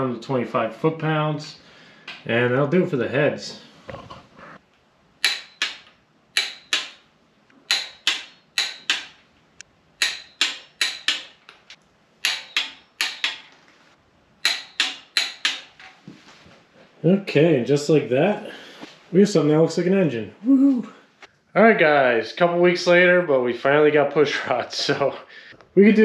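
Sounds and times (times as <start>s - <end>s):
torque wrench clicking: 5.2s - 7.0s, 7.7s - 9.2s, 10.0s - 13.5s, 14.4s - 15.7s.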